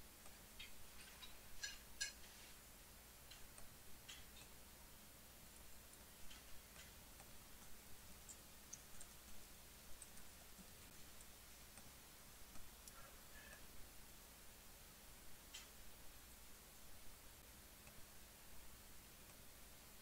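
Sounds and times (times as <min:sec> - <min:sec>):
faint clicks and ticks: 0:00.0 - 0:20.0
low steady hum: 0:00.0 - 0:20.0.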